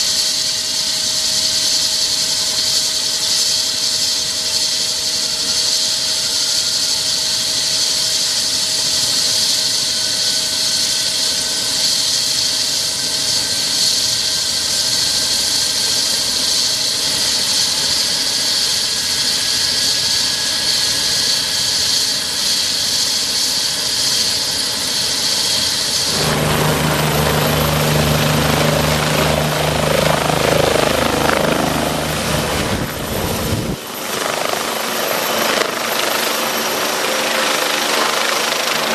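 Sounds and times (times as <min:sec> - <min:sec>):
helicopter turbine whine: 0:00.0 - 0:38.9
pulsing rotor blade beat: 0:25.9 - 0:36.3.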